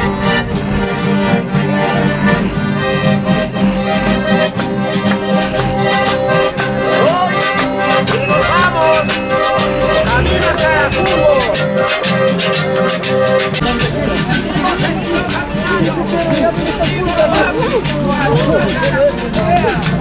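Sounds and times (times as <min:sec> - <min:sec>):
accordion playing tune: 0:00.0 - 0:20.0.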